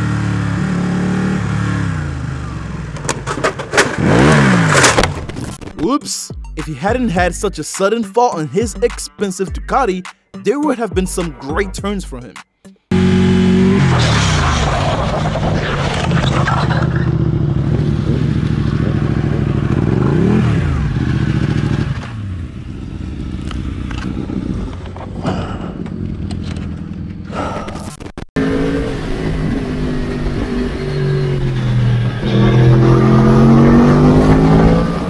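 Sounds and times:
motorcycle engine running: 0.0 - 5.5, 12.9 - 14.0, 16.5 - 27.6
riding motorcycle engine: 0.0 - 5.6, 12.9 - 35.0
motorcycle scraping on asphalt: 2.0 - 5.6, 13.0 - 25.2.

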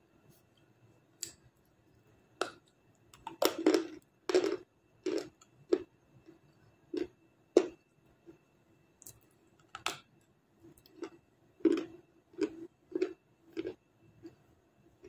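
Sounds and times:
crunchy chewing: 2.4 - 7.8, 10.8 - 14.4.

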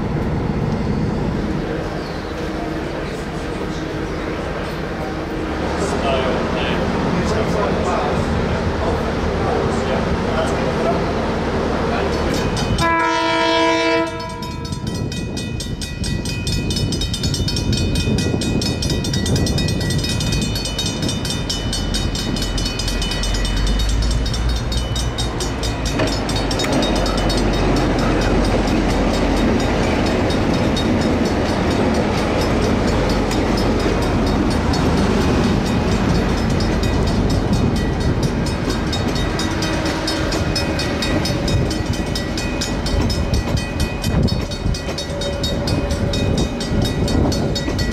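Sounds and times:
locomotive engine rumble: 0.0 - 47.9
train wheels rolling: 0.0 - 47.9
train horn blast: 12.8 - 14.7, 39.6 - 41.6.

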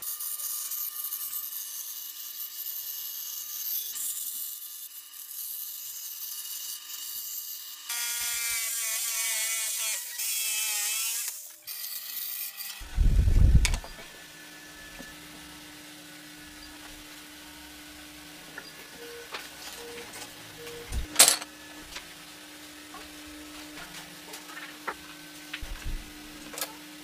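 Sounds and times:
loud low rumble: 12.8 - 13.8.

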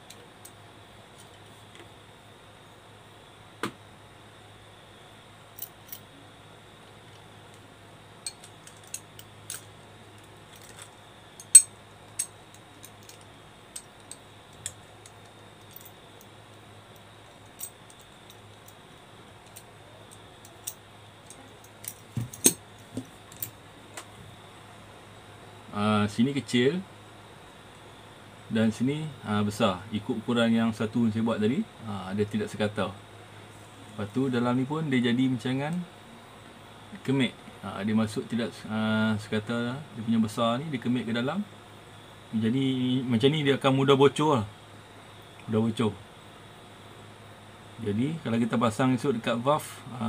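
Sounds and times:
faint steady hum: 0.0 - 50.0
metallic clicks and clinks of tool: 8.2 - 16.0, 17.4 - 18.8, 19.4 - 22.6.

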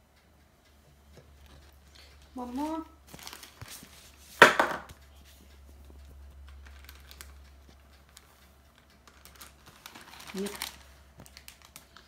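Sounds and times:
sharp knock: 4.4 - 4.9
sugar poured from plastic bag: 9.4 - 12.0.

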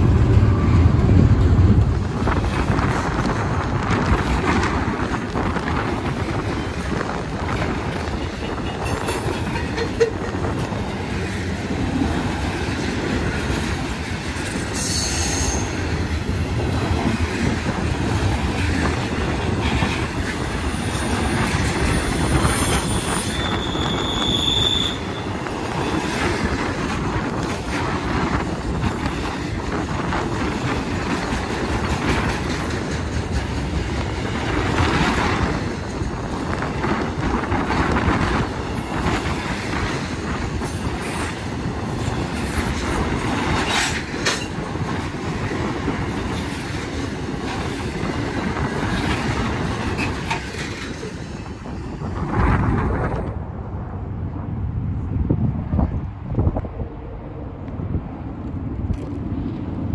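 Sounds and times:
freight train wheels rumbling: 0.0 - 59.9
high wheel squeals: 21.9 - 25.4.

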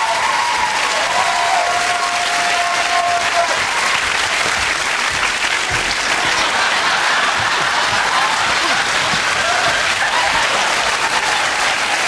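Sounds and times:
studio audience applauding: 0.0 - 12.0.

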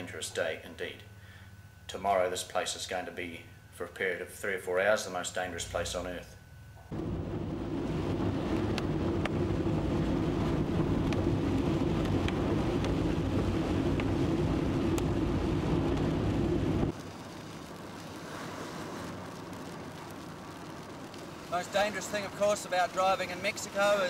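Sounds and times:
quiet even hiss: 0.0 - 24.0
truck engine and tyre drone: 6.9 - 22.7.

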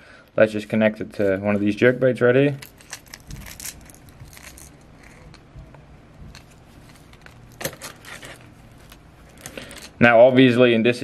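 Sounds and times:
fingers rustling: 2.5 - 9.9.

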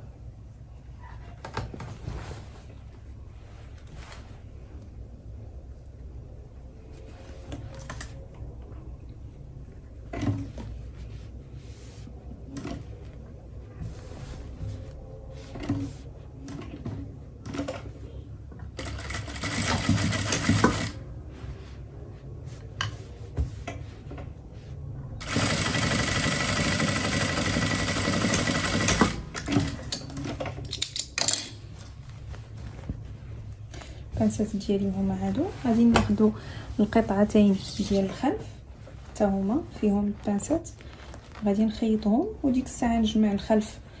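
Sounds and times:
sewing machine stitching: 18.8 - 21.0, 25.2 - 30.4.

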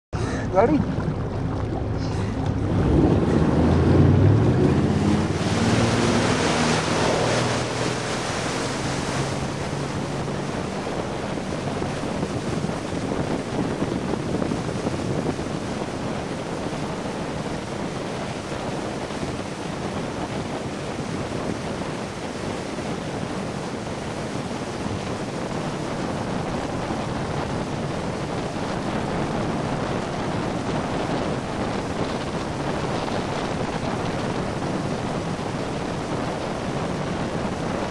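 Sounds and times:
motorboat engine drone: 0.2 - 37.9
wind on microphone: 0.2 - 37.9
water spray rushing: 1.8 - 14.8.

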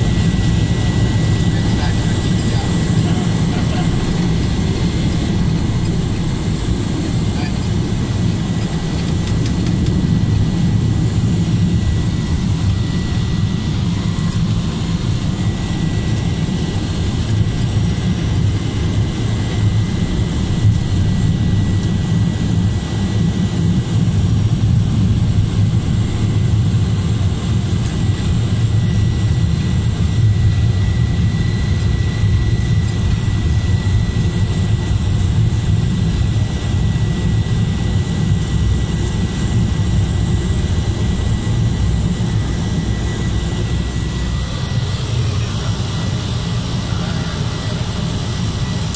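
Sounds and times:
high-pitched whine: 0.0 - 48.9
turboprop engine drone: 0.0 - 48.9.

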